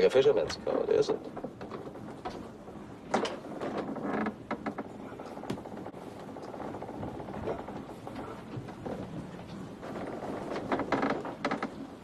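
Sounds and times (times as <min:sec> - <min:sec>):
creaks and clicks: 0:00.4 - 0:12.0.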